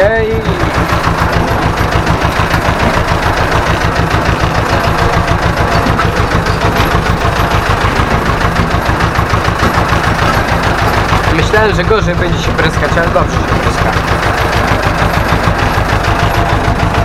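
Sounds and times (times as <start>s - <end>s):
tractor diesel engine running: 0.0s - 17.0s.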